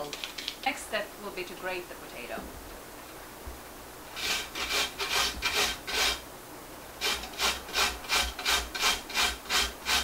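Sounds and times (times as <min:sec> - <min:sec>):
potato grating on metal grater: 0:04.2 - 0:06.2, 0:07.0 - 0:10.0.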